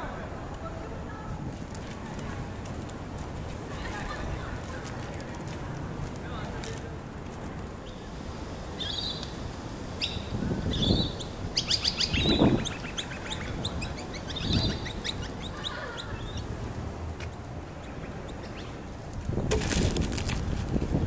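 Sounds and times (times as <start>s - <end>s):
birds chirping: 7.8s - 19.1s.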